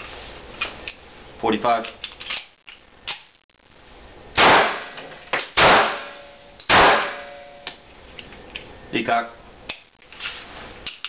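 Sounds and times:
pistol shots echoing in room: 4.4s - 7.6s.

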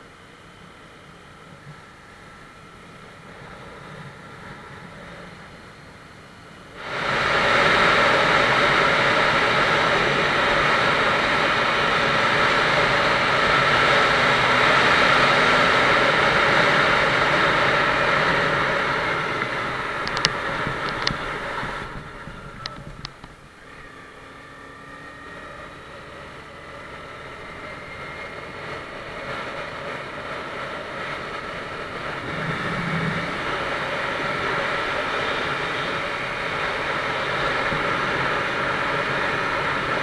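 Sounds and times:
motorcycle engine: 6.8s - 40.0s
wind rushing: 26.6s - 40.0s.

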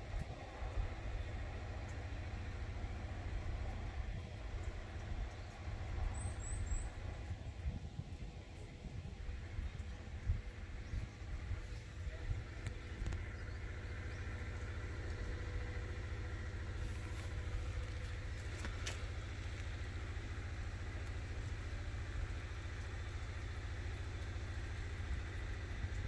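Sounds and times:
low rumble: 0.0s - 26.0s
faint clicks: 12.6s - 15.3s.

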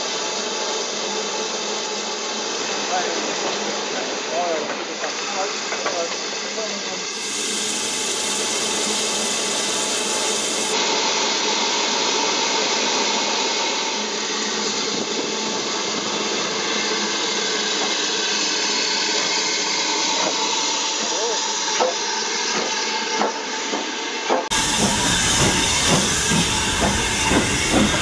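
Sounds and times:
steam hissing: 6.2s - 10.8s, 24.5s - 28.0s.

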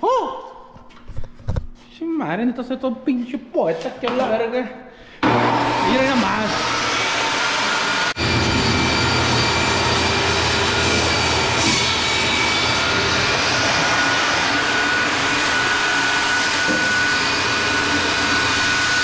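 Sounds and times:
fan whooshing with whine: 5.7s - 19.0s.

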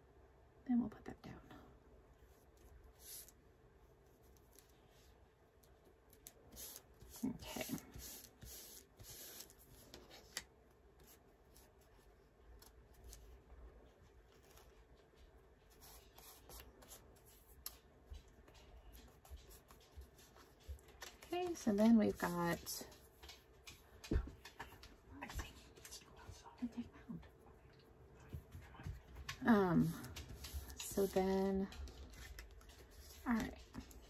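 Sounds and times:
paper rustling: 29.9s - 34.0s.

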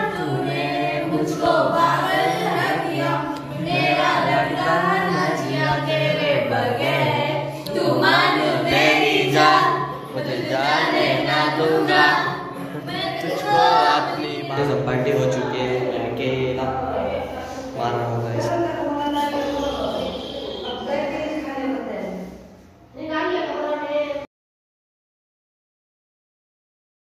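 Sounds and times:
choir-like sung vocals: 0.0s - 21.3s.

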